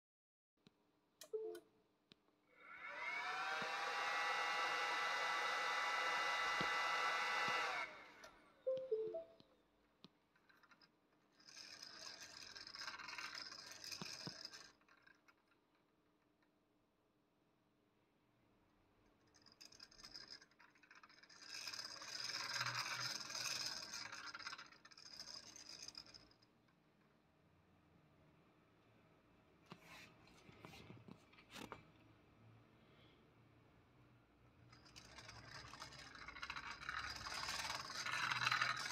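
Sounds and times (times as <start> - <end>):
motor whine spinning: 2.6 - 8.3.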